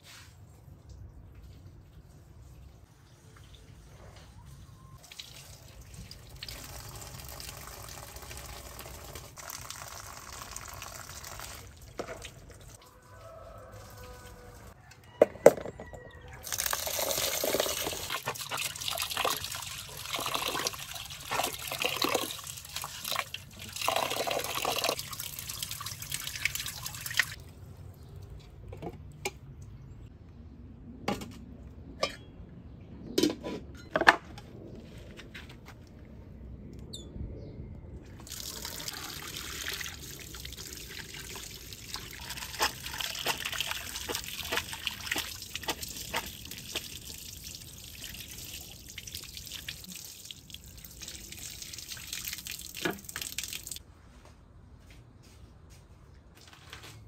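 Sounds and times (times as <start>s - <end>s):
rice rinsed in water: 16.4s - 27.4s, 38.2s - 53.8s
pot and lid clinking: 32.0s - 32.3s.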